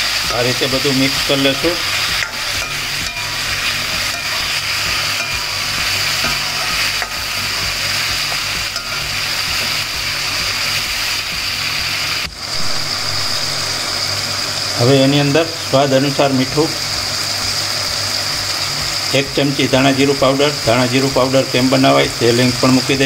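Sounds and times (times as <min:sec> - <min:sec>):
vegetables sizzling in oil: 0:00.0 - 0:23.0
metal ladle scraping pan: 0:01.4 - 0:14.5.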